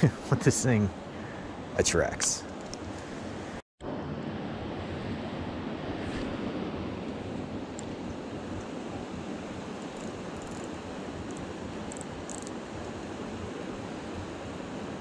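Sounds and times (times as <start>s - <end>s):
faint high ticks: 9.8s - 10.7s, 11.3s - 12.6s.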